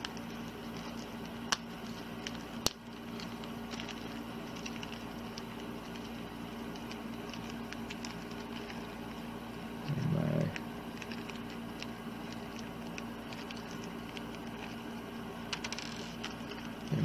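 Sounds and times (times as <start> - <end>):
steady low hum: 0.0 - 17.0
small parts clicking and ticking: 15.5 - 17.0.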